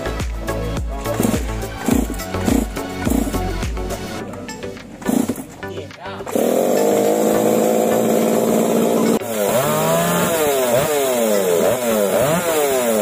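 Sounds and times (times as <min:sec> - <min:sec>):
chainsaw engine revving: 0:01.0 - 0:03.7, 0:05.0 - 0:05.5, 0:06.3 - 0:13.0.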